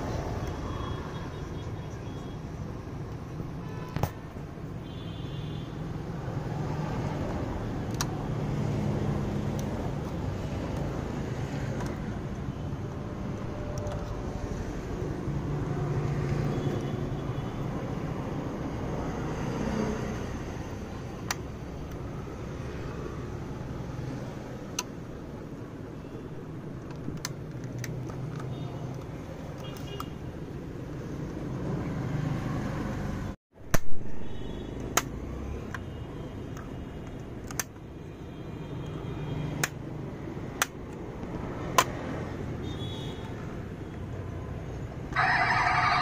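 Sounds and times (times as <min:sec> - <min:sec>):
plastic clicks of toy car doors: 0:36.5 - 0:37.8.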